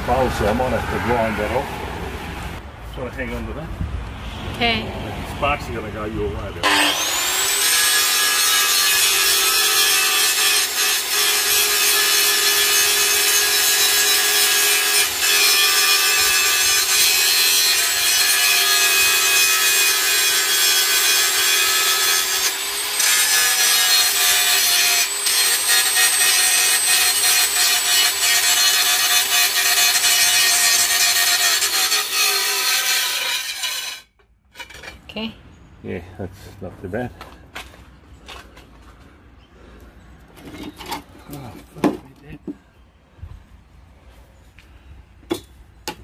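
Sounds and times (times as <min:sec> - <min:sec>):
angle grinder grinding steel: 0:06.6 - 0:34.7.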